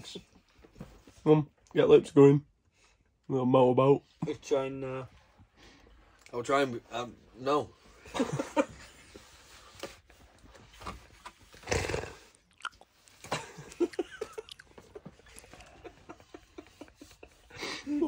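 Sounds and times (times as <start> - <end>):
lip smacking: 12.4 - 13.0, 13.9 - 15.5.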